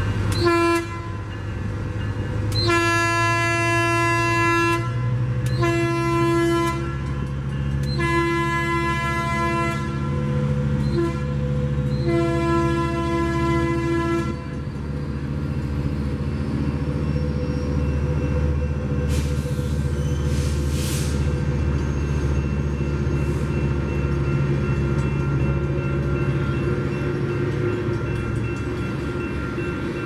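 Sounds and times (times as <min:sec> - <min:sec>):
diesel locomotive engine: 0:00.0 - 0:30.0
train cars rumbling: 0:00.0 - 0:30.0
train horn: 0:00.3 - 0:01.3, 0:02.6 - 0:07.2, 0:07.9 - 0:14.6.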